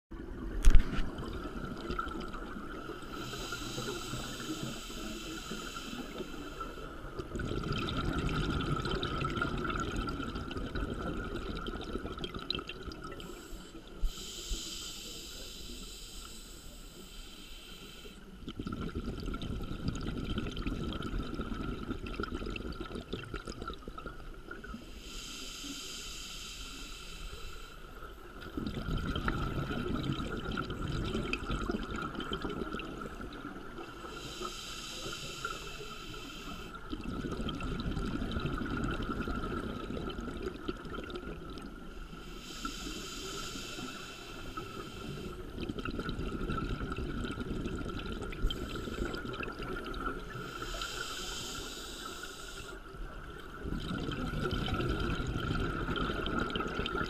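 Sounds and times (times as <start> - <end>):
faint steady tone: 0.2 - 57.0
hissing regulator inhalations: 3.1 - 7.0, 13.2 - 18.4, 24.8 - 28.2, 33.8 - 36.8, 41.9 - 45.6, 50.1 - 52.9
bubbling underwater exhalations: 7.2 - 13.2, 18.4 - 24.2, 28.4 - 33.9, 36.9 - 41.7, 45.3 - 50.6, 53.2 - 57.0.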